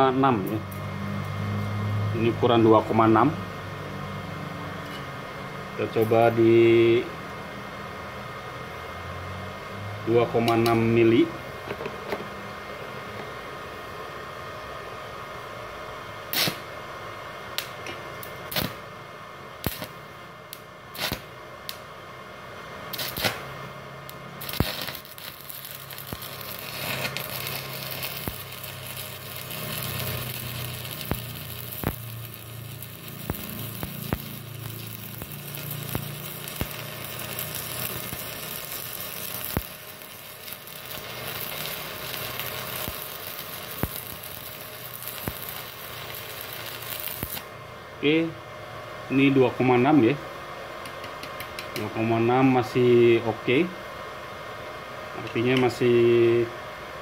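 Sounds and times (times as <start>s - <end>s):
welding arc crackle and hiss: 0.0s - 9.3s, 10.1s - 14.2s, 15.7s - 48.4s, 54.6s - 56.6s
welding rod striking snaps: 10.4s - 10.8s, 16.3s - 16.7s, 17.6s - 18.8s, 19.6s - 21.9s, 22.9s - 47.5s, 50.8s - 51.9s.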